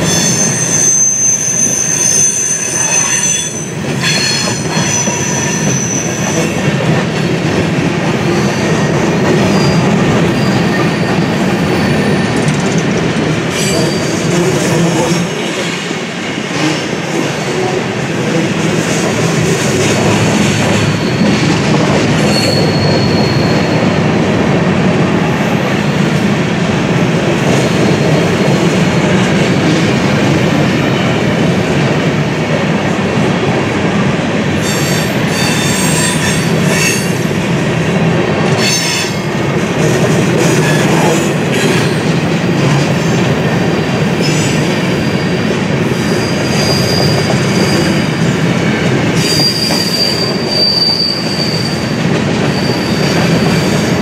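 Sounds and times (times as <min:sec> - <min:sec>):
high-pitched wheel squeals: 0:00.0 - 0:06.5, 0:22.3 - 0:23.9, 0:34.6 - 0:37.1, 0:46.0 - 0:48.0, 0:49.2 - 0:54.0
freight train rumbling past: 0:00.0 - 0:54.0.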